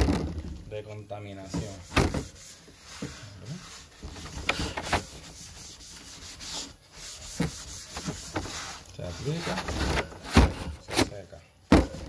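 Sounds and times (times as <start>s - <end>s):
gloved hand rubbing wood: 1.4s - 10.3s.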